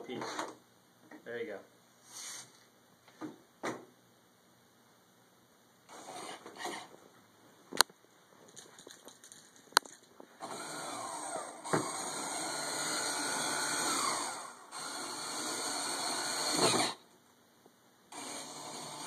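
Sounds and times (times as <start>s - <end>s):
small electric motor whirring: 10.4s - 17.0s, 18.1s - 19.0s.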